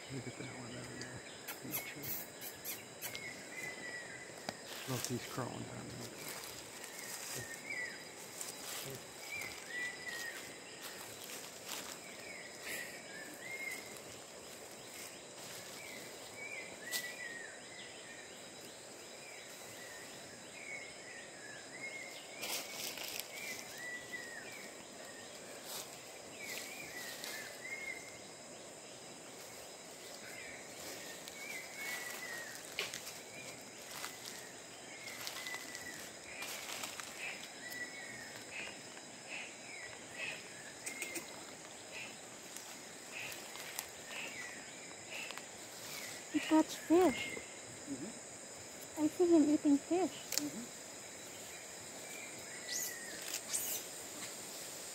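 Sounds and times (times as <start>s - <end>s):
insect drone: 0.0s - 54.9s
short chirping calls: 1.0s - 4.1s, 52.3s - 54.0s.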